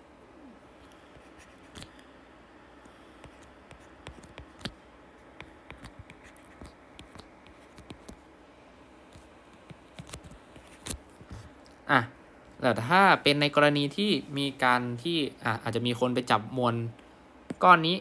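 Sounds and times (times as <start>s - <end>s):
stylus scratching on tablet screen: 1.1s - 1.9s, 3.2s - 8.2s.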